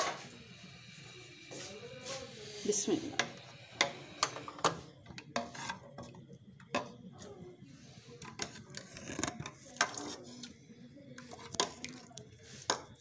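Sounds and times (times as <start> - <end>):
spoon scraping metal pot: 5.3 - 6.2, 8.2 - 10.6.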